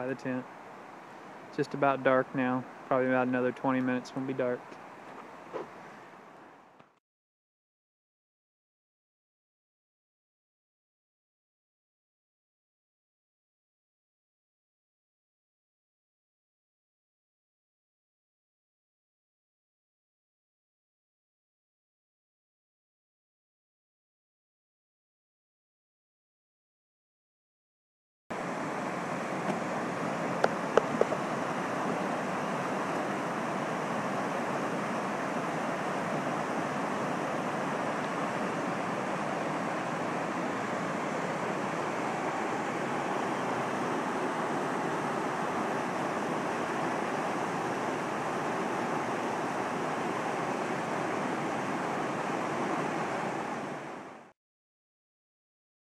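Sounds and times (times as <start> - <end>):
water rushing over rapids: 28.4 - 54.3.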